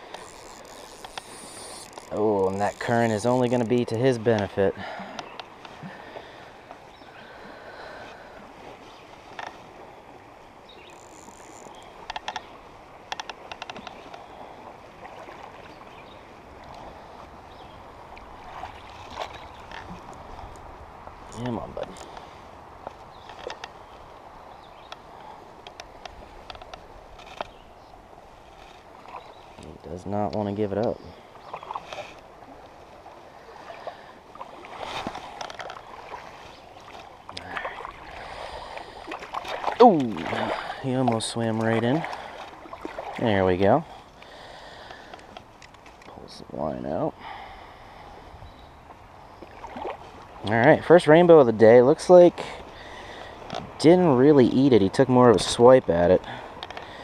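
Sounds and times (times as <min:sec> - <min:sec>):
creek rushing: 0:00.0 - 0:45.6
fish thrashing splashes: 0:34.4 - 0:40.8.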